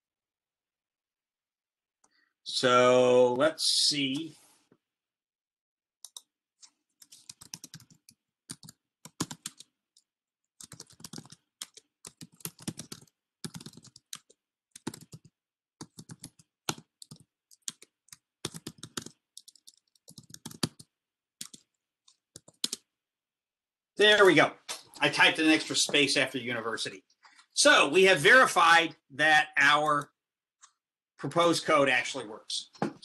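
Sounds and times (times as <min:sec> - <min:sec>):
typing on computer keyboard: 0:06.0 - 0:22.9.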